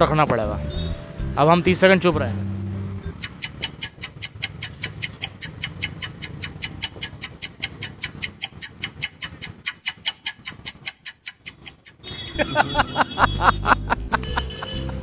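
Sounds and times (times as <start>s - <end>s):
rapid clock ticking: 3.0s - 13.1s.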